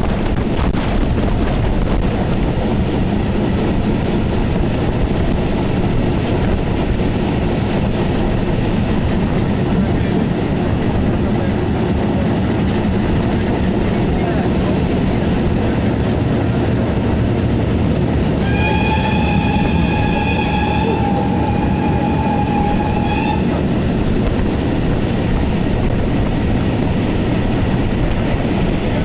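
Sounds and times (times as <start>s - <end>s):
train wheels rumbling on rails: 0.0s - 29.0s
steam locomotive whistle: 18.4s - 23.6s.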